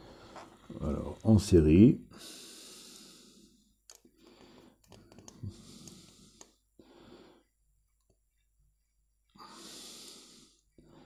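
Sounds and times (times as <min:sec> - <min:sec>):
breathing close to microphone: 0:02.1 - 0:07.5, 0:09.3 - 0:11.0.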